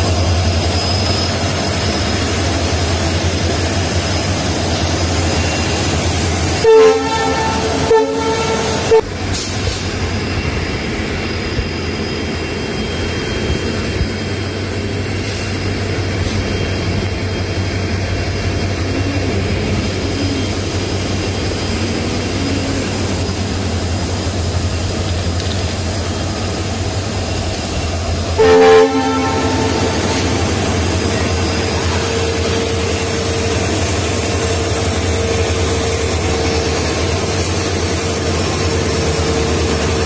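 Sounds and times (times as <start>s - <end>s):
diesel train rumbling: 0.0s - 40.0s
locomotive horn blast: 6.6s - 9.4s, 28.4s - 32.8s.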